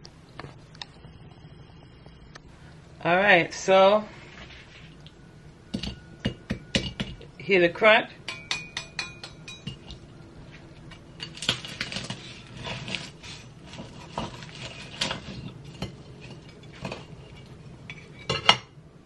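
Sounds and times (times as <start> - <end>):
knife sawing crispy pastry: 11.8 - 15.4.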